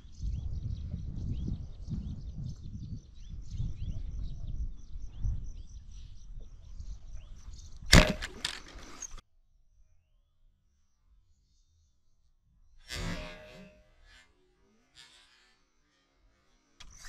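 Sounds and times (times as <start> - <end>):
low rumble of wind: 0.0 - 9.2
speargun firing crack: 7.9 - 8.9.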